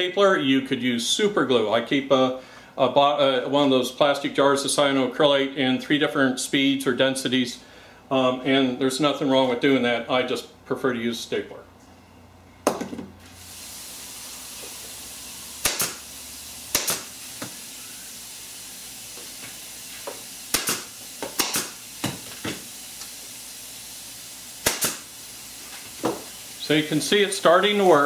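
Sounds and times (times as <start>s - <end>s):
steady air hiss: 13.2s - 28.0s
pneumatic stapler shots: 14.6s - 18.2s, 19.2s - 23.2s, 24.5s - 25.2s.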